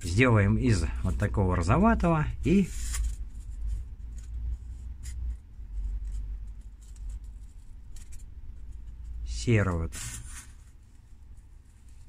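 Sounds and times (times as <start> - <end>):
rubbing and scraping foam: 9.8 - 12.0.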